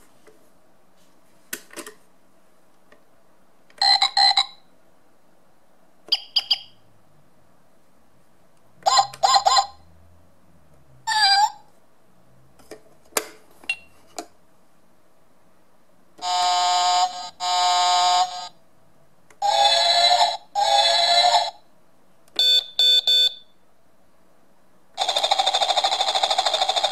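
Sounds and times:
car horn beeps: 22.4s - 23.5s.

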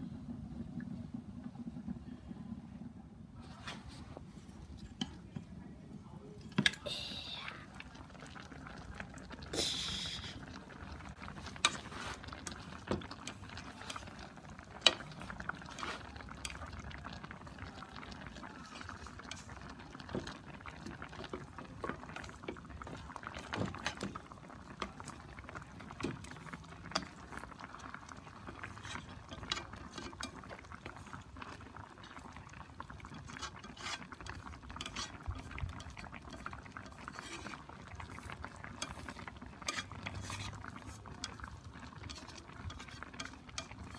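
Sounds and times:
liquid bubbling in skillet: 0.0s - 43.9s
chopsticks scraping pan: 11.4s - 16.6s, 26.9s - 30.6s, 33.0s - 43.9s.

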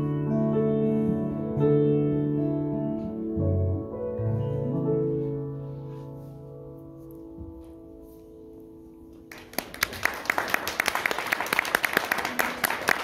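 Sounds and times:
audience applause: 9.3s - 13.0s.

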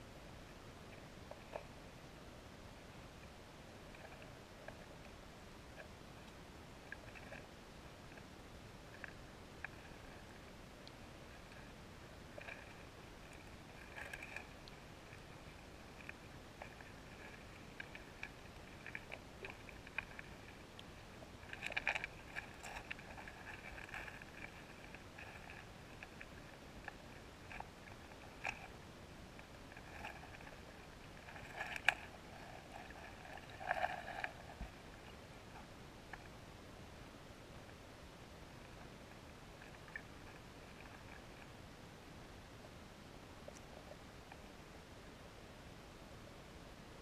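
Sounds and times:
underwater river clicks and taps: 12.3s - 28.8s, 29.4s - 36.4s.

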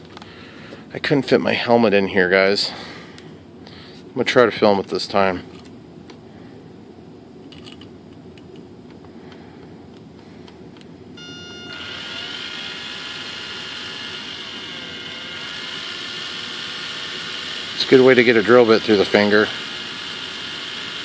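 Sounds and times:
electric drill whining: 11.2s - 21.0s.

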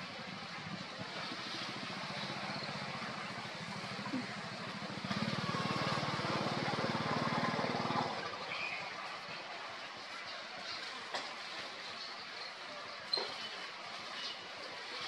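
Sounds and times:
small engine puttering: 1.2s - 8.4s.

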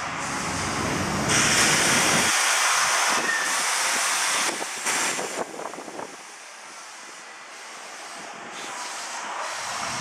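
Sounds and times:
tyres hissing on road: 0.0s - 10.0s.

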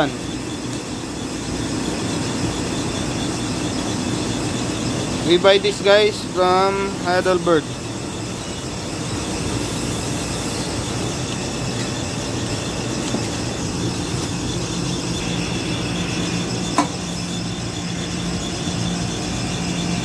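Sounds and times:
machinery high-pitched whine: 0.0s - 20.0s
low hum: 8.2s - 20.0s.

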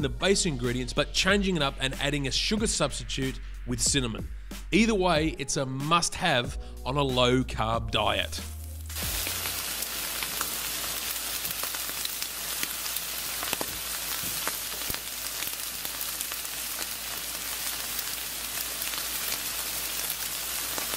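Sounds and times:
fat crackling and popping: 8.5s - 20.9s
steak sizzling on charcoal grill: 8.5s - 20.9s.

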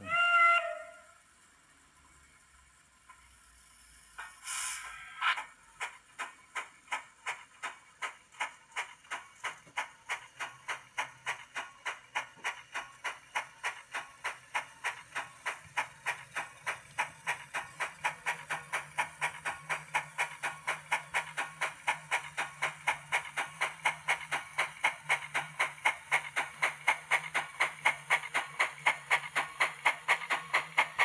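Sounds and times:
model steam locomotive chuffing: 0.0s - 31.0s
steam hiss: 3.5s - 10.5s.

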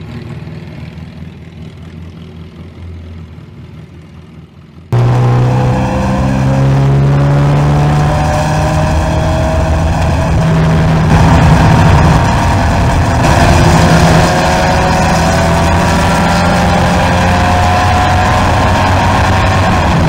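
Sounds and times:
race car engine accelerating: 4.9s - 20.0s.

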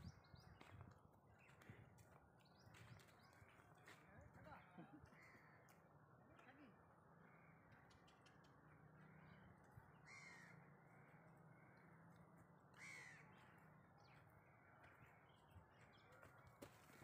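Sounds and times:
crow cawing: 5.1s - 5.7s, 10.0s - 11.7s, 12.7s - 13.6s.

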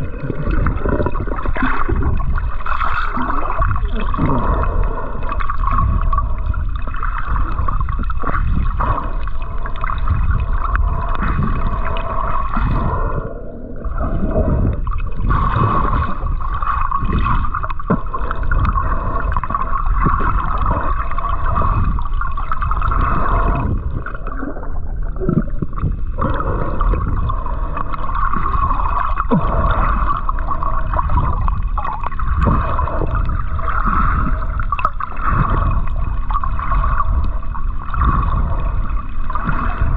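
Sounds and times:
water gurgling and sloshing: 0.0s - 39.9s.

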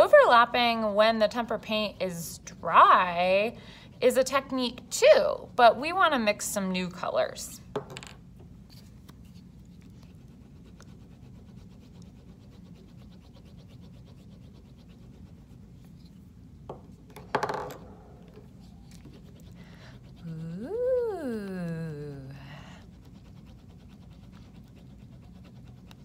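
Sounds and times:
paint stick scraping paper: 8.7s - 16.3s, 18.2s - 20.4s, 22.8s - 26.0s.

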